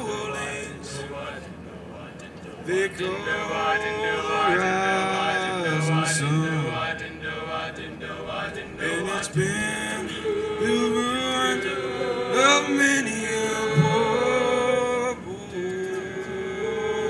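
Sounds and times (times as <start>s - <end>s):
lead voice singing: 0.0s - 17.0s
male a cappella group singing: 0.0s - 17.0s.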